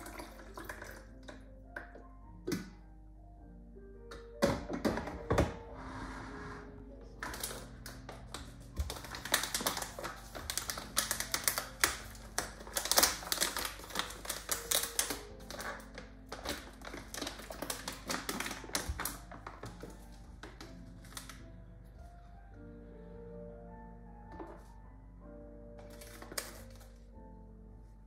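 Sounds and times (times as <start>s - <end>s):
soft background music: 0.0s - 28.0s
foil bag crinkling: 7.2s - 21.4s, 25.8s - 27.0s.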